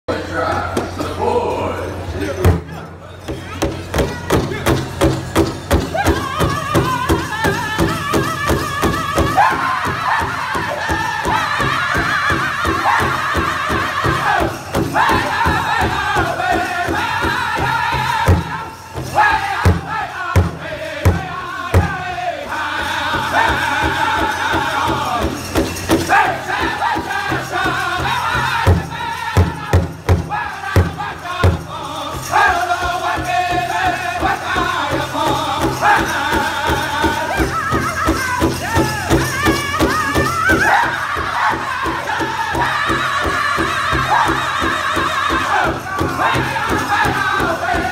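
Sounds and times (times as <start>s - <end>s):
hand drum steady beat: 2.5s - 47.9s
group singing: 5.7s - 47.9s
loud separate drum strikes: 22.8s - 47.9s.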